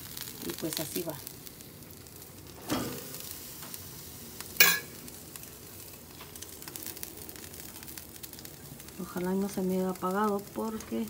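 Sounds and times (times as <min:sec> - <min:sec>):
ribs sizzling on a grill: 0:00.0 - 0:11.0.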